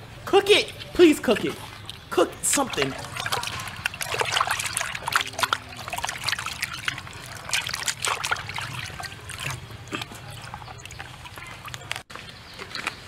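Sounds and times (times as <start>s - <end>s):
hands scrubbing turtle: 1.2s - 12.1s
water splashing in plastic basin: 1.2s - 12.1s.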